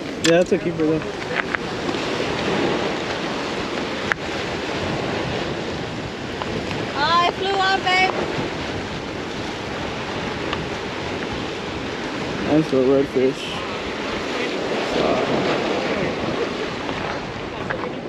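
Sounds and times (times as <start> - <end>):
surf washing against rocks: 0.0 - 18.0
wind buffeting microphone: 0.0 - 18.0.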